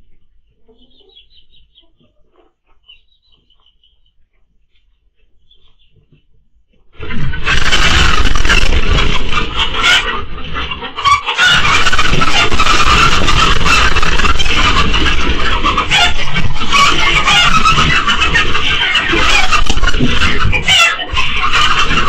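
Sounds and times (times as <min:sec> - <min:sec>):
chickens squawking: 0:00.4 - 0:06.3, 0:07.0 - 0:22.0
wings beating: 0:07.0 - 0:10.2, 0:11.4 - 0:22.0.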